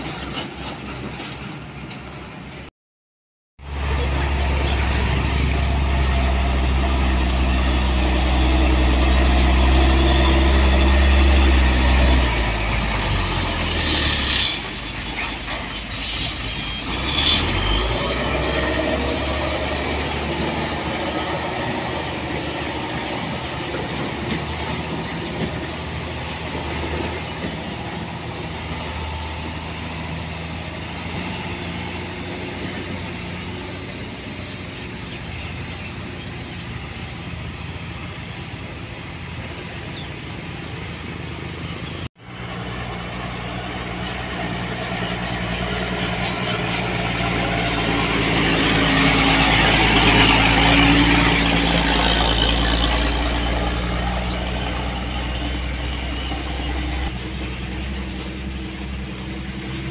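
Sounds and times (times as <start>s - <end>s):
diesel truck engine: 3.6s - 59.9s
reverse alarm beeping: 17.6s - 41.9s.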